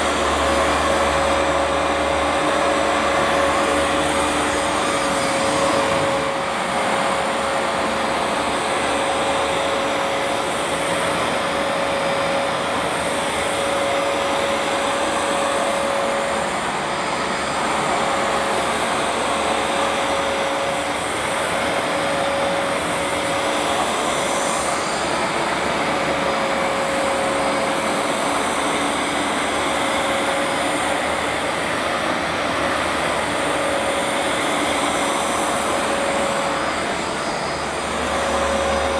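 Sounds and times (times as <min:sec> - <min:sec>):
carpet washer motor and suction: 0:00.0 - 0:38.9.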